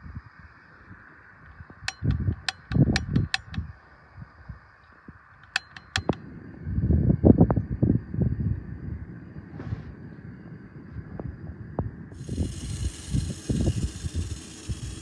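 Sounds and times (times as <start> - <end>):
sharp clicks: 1.9 - 3.7, 5.4 - 6.2
gas stove hissing: 12.2 - 15.0.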